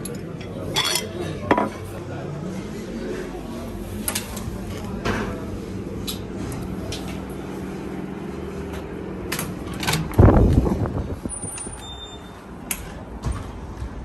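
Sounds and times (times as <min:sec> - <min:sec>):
doors being pushed open: 0:08.8 - 0:14.0.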